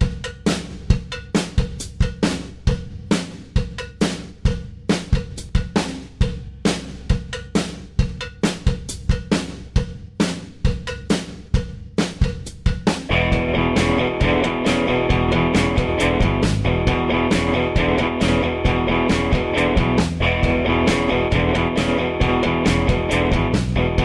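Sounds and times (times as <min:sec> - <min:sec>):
rock drum beat: 0:00.0 - 0:24.0.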